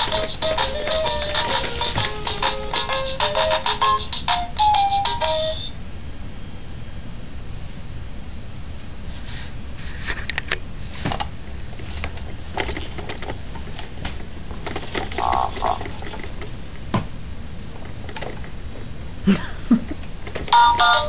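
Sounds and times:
plastic toys clicking and rattling: 0.0 - 4.2, 12.2 - 16.5, 17.8 - 18.5
low room hum: 0.0 - 21.0.

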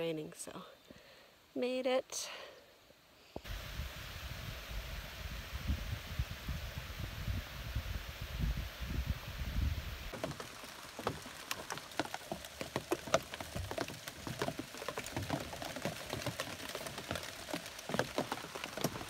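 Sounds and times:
wind rumble on microphone: 3.4 - 10.1
rain pattering on fabric: 9.8 - 19.0.

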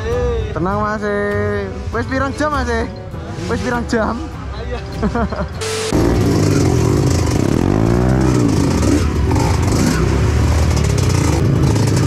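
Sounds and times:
motorcycle engine revving: 5.6 - 12.0.

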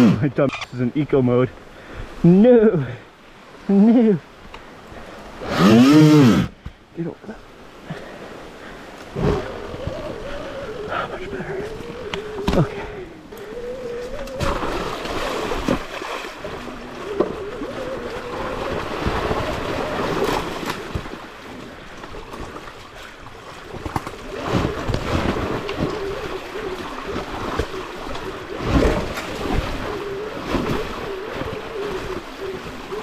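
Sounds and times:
electric motor whining: 5.4 - 6.5
wind on microphone: 9.1 - 33.0.

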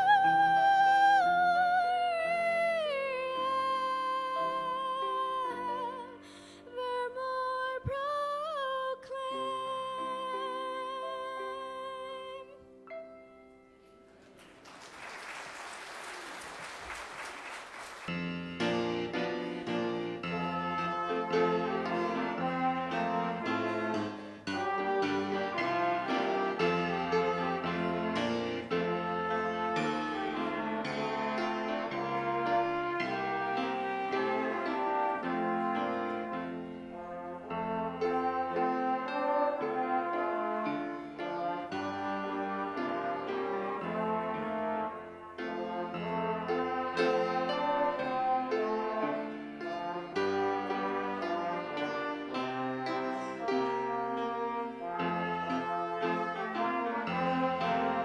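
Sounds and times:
girl singing: 0.0 - 12.7
brass ensemble with piano: 0.0 - 58.0
applause: 14.2 - 18.3.

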